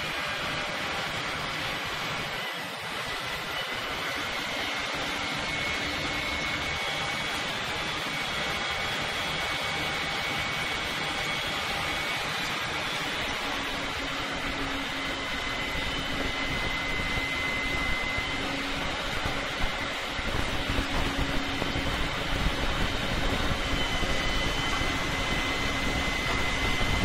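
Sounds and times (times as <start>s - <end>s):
crane engine running: 0.0s - 27.0s
faint high whine: 0.0s - 27.0s.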